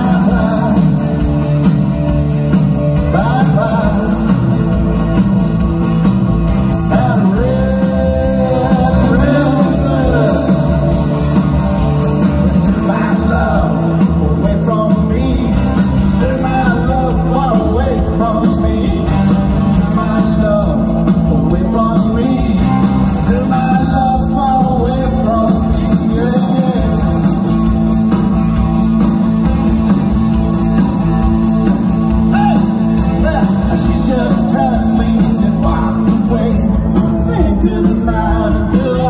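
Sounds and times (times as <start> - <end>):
lead singer singing: 0.0 - 1.5, 3.0 - 4.9, 6.7 - 11.5, 12.4 - 27.8, 32.3 - 39.0
live rock band playing: 0.0 - 39.0.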